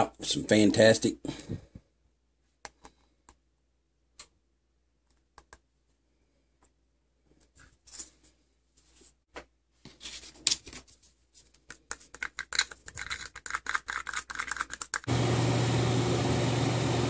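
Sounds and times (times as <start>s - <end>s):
stick stirring paint in cup: 11.5s - 15.1s
machine hum: 15.1s - 17.0s.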